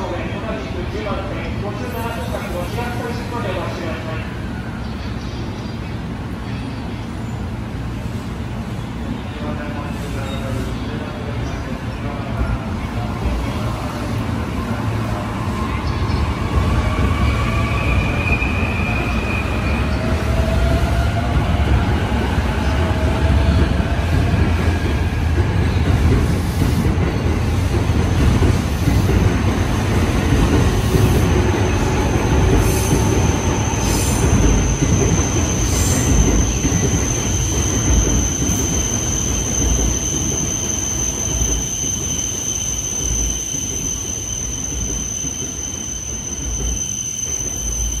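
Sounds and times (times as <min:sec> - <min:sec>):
train wheels rumbling on rail: 0:00.0 - 0:48.0.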